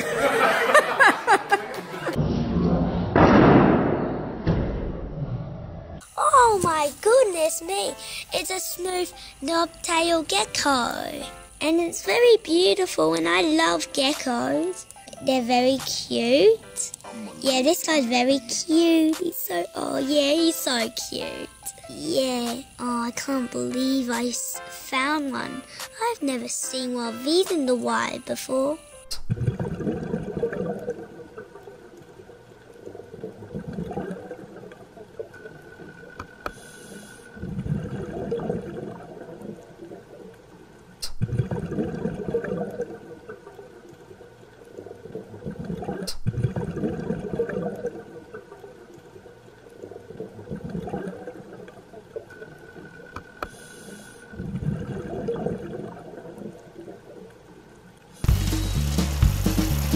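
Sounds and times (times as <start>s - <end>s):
underwater bubbling rushing water: 29.3s - 59.9s.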